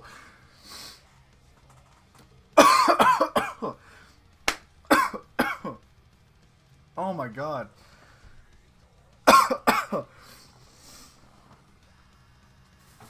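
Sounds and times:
man coughing and gasping: 2.6s - 4.1s, 4.9s - 5.9s, 9.2s - 10.3s.

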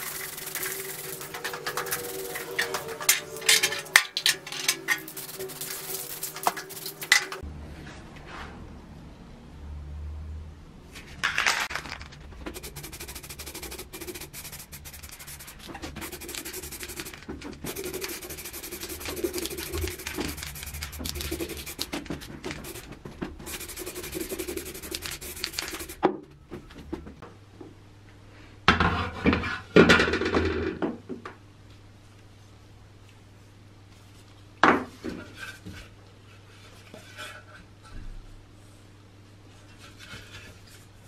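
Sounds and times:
aerosol can spraying: 0.0s - 3.1s, 4.8s - 7.4s, 12.5s - 26.0s
knocks and scrapes: 10.9s - 27.2s.

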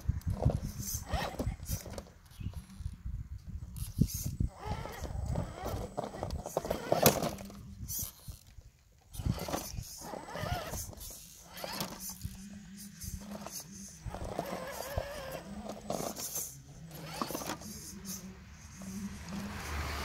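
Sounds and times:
toy car electric motor whining: 0.2s - 3.0s, 3.7s - 20.0s
tyres scraping on stone: 3.9s - 8.3s, 13.0s - 18.2s.

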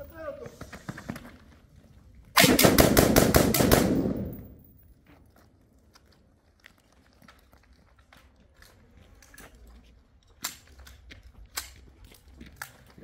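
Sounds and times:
gunshot echo: 2.4s - 4.6s
rifle rapid fire: 2.4s - 4.6s.

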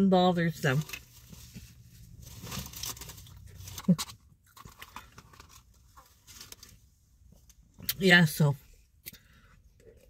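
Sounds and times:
food handling: 0.6s - 6.8s
chewing and crunching: 0.9s - 6.7s.

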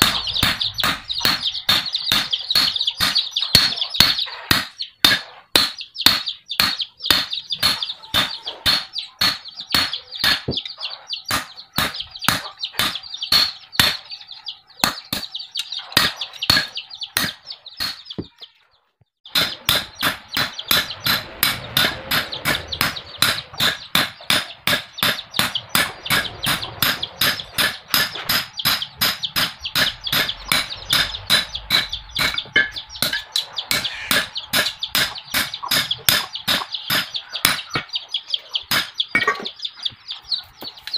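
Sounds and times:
hammer striking hot steel on anvil: 0.0s - 10.6s, 11.3s - 14.0s, 14.8s - 18.3s, 19.3s - 38.0s, 38.6s - 39.5s.

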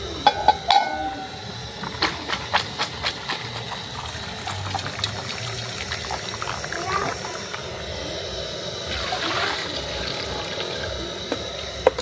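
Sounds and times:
gas burner hissing: 0.0s - 12.0s
metal bowls clattering: 0.2s - 3.6s
water draining through colander: 1.9s - 7.6s, 8.8s - 12.0s.

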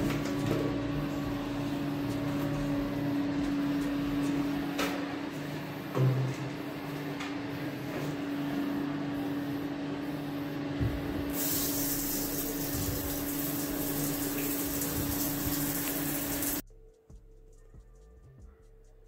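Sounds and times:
shower water spraying on tiles: 11.3s - 16.6s.

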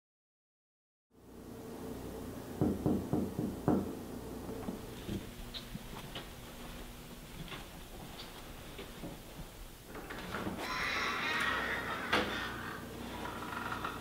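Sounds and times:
knocking on a door: 2.6s - 4.0s
soft footsteps: 4.5s - 9.7s.

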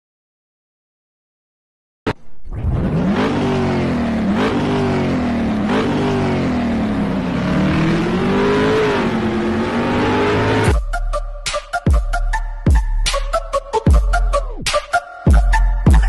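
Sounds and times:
engine revving: 2.5s - 10.8s.

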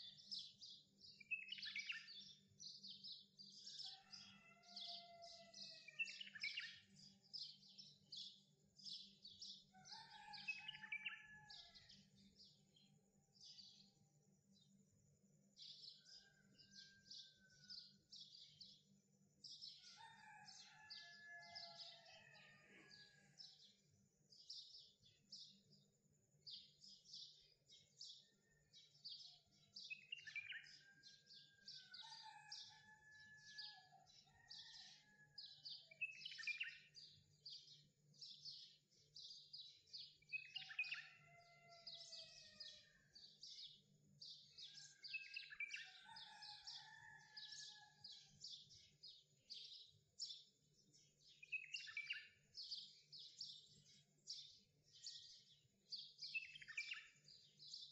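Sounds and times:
bird chirping: 51.0s - 54.6s.

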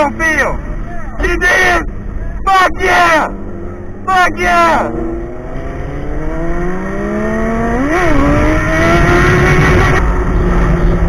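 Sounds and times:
motorcycle engine accelerating: 3.2s - 11.0s.

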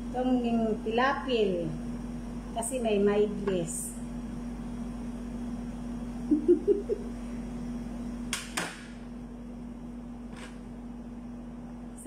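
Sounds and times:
low electrical appliance hum: 0.0s - 12.0s.

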